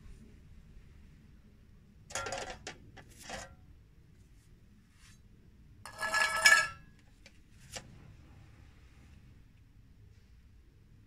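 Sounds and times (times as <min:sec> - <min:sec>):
metal knife scraping filler: 0:05.9 - 0:06.8.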